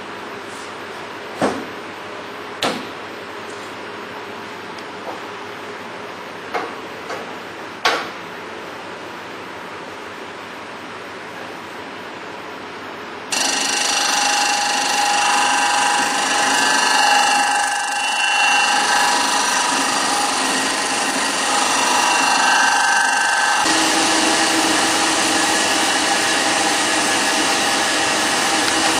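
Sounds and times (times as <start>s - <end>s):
disc sander sanding wood: 13.3s - 28.9s.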